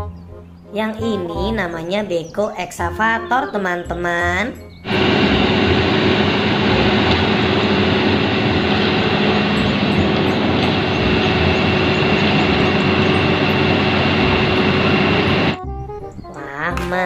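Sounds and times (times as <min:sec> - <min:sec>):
excavator diesel engine running: 0:04.8 - 0:15.6.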